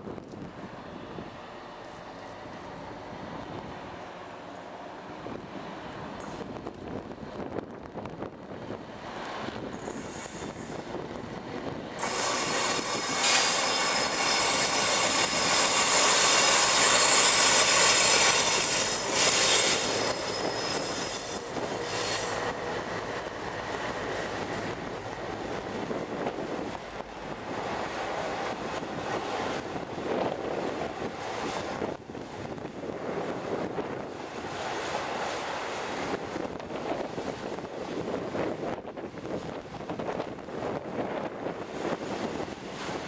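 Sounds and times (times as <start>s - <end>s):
diesel locomotive passing: 0.4s - 43.0s
train wheels clicking on rails: 8.9s - 32.0s
wheel squeal: 12.0s - 22.4s.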